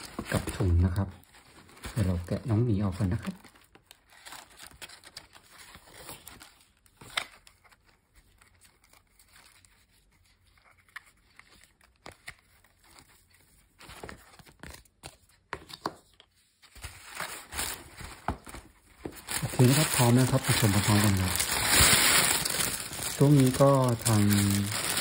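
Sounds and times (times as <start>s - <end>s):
paper bag rustling: 17.0s - 25.0s.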